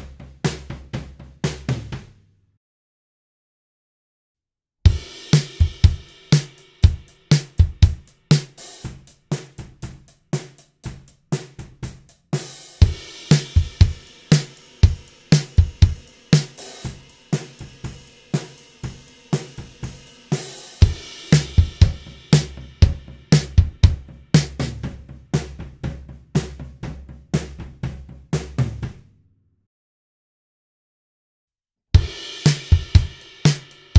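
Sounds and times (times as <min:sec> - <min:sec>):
drum kit playing groove: 0:00.0 - 0:02.2, 0:04.9 - 0:29.1, 0:32.0 - 0:33.9
kick drum thumps: 0:04.9 - 0:06.0, 0:06.8 - 0:08.1, 0:20.8 - 0:28.1, 0:32.0 - 0:33.2.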